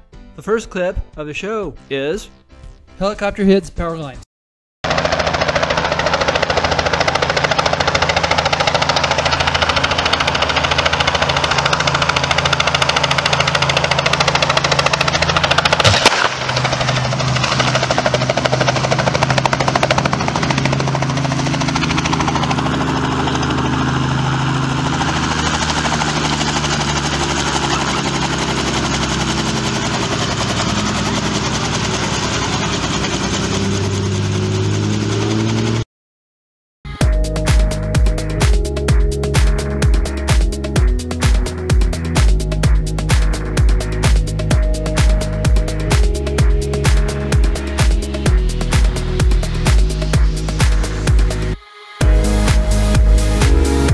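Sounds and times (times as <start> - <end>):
helicopter rotor chopping: 4.8 - 35.8, 37.1 - 53.9
sharp crack: 4.9 - 21.1.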